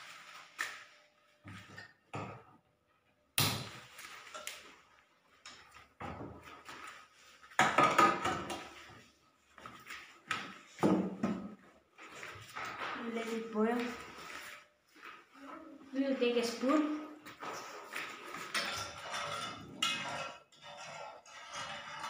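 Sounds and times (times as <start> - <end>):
metal pot knocking and clattering: 7.6 - 8.7, 18.4 - 20.8.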